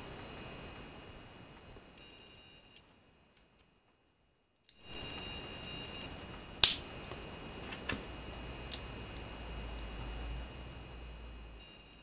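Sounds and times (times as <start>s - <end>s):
faint steady hiss: 0.0s - 12.0s
plastic bricks snapping together: 6.6s - 6.8s.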